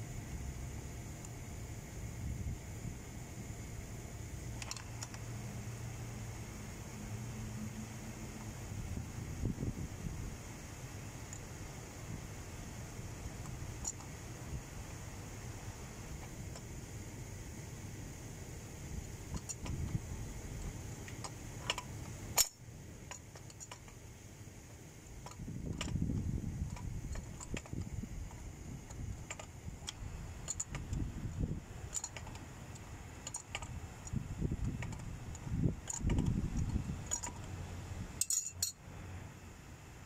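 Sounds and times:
metal fittings clicking: 0:31.9 - 0:37.5, 0:38.2 - 0:38.8
metal parts scraping: 0:38.2 - 0:38.7.

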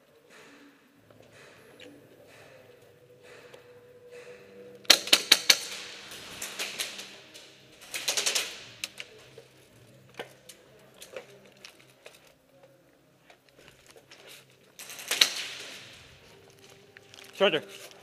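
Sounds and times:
airsoft gunfire: 0:04.9 - 0:07.2.

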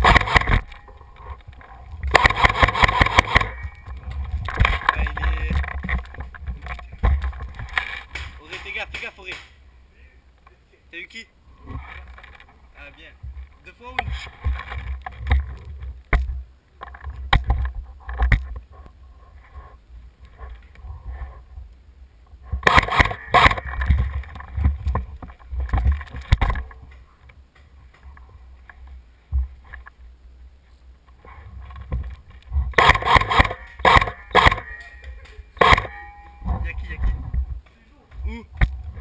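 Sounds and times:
wind rumble on microphone: 0:00.0 - 0:08.2, 0:23.2 - 0:26.9, 0:36.4 - 0:37.6, 0:38.2 - 0:39.0
sharp clicks: 0:01.5 - 0:06.9, 0:32.7 - 0:36.0.

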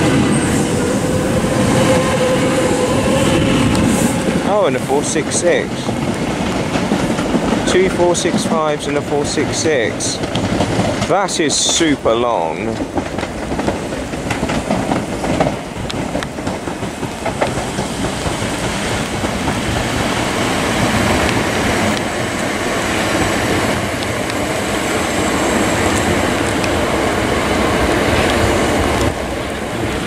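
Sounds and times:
electric train running: 0:00.0 - 0:05.9
wheels clicking over rail joints: 0:02.2 - 0:30.0.

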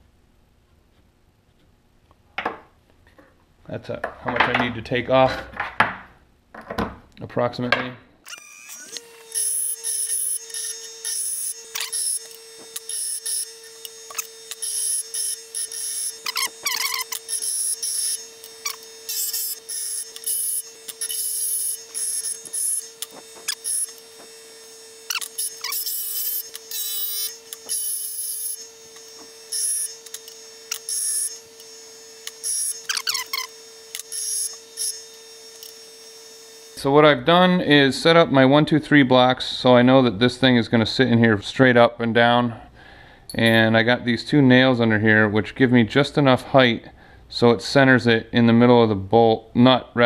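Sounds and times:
bench grinder motor hum: 0:08.3 - 0:36.9.

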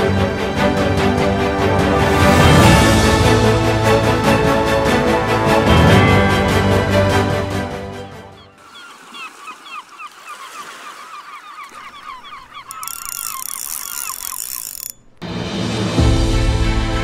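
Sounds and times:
flock of birds calling: 0:08.3 - 0:14.4.

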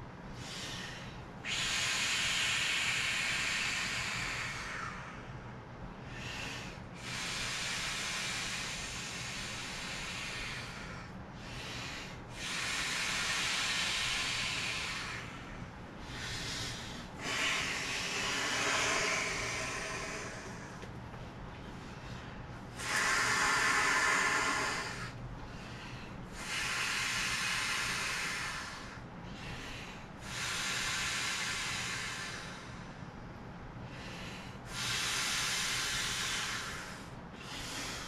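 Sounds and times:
short breaths: 0:00.3 - 0:33.2, 0:33.8 - 0:38.0
breath blowing through valve: 0:06.2 - 0:20.9, 0:22.7 - 0:25.7, 0:26.3 - 0:32.8, 0:34.0 - 0:38.0.

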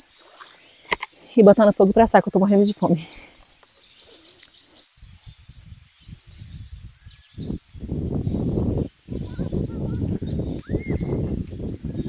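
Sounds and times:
faint bird chirps: 0:02.5 - 0:12.0
wind buffeting microphone: 0:04.9 - 0:12.0.

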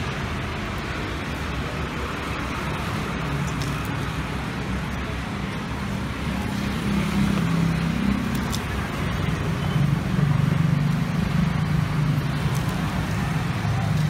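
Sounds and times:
road traffic passing: 0:00.0 - 0:14.0.

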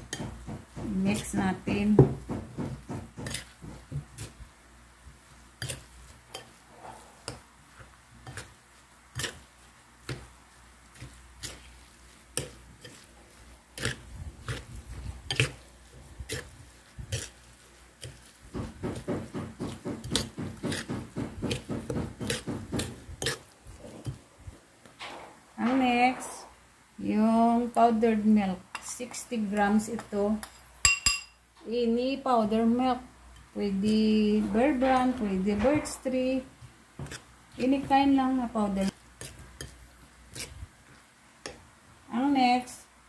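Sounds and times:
spoon clinking against ceramic bowl: 0:30.8 - 0:31.4.

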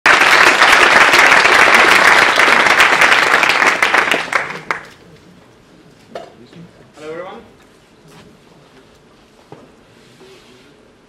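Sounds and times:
audience applauding: 0:00.1 - 0:05.0.

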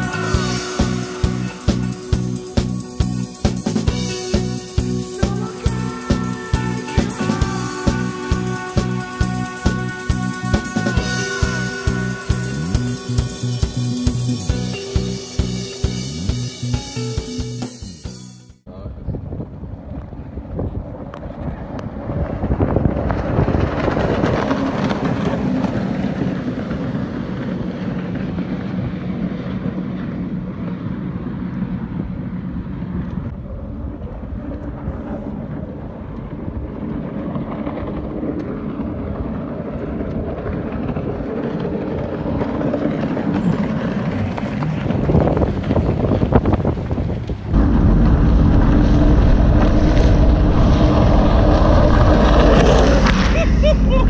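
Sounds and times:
boat engine running: 0:00.0 - 0:17.6, 0:19.7 - 0:54.0
wind buffeting microphone: 0:18.7 - 0:54.0
water rushing: 0:47.5 - 0:54.0.

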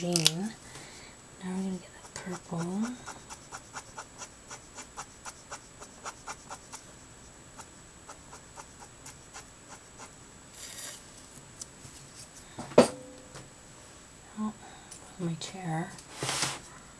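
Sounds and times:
marker nib strokes on cardstock: 0:02.0 - 0:11.0
paper rustle: 0:16.1 - 0:16.7.

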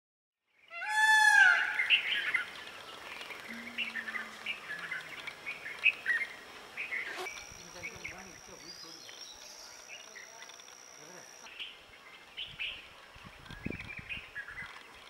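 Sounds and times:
peacock call: 0:00.7 - 0:02.5, 0:03.5 - 0:06.4
small birds chirping: 0:01.8 - 0:15.0.

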